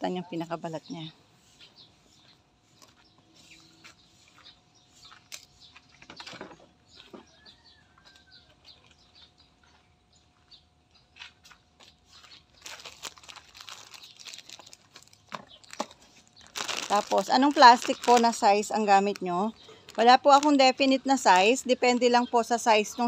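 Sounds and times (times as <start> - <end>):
bird chirp: 0.0 - 11.2
plastic bag crinkling: 11.8 - 21.6.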